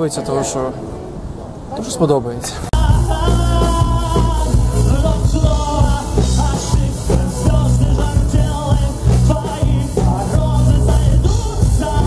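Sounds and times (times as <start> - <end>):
man singing: 2.7 - 12.0
live rock band playing: 2.8 - 12.0.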